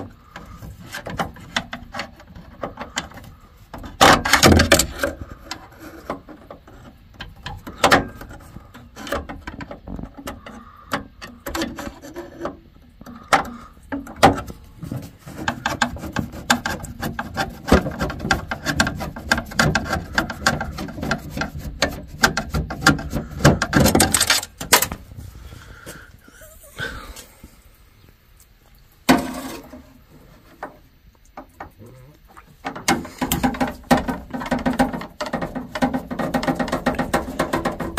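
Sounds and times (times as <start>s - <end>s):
hand tools clicking and knocking: 0.0s - 25.0s, 32.6s - 37.9s.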